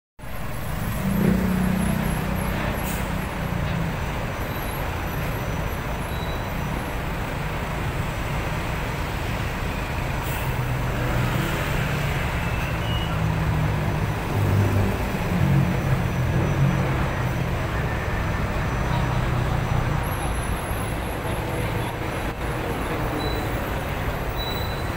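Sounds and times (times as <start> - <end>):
trucks passing: 0.2 - 24.9
motorcycles passing: 0.4 - 3.9.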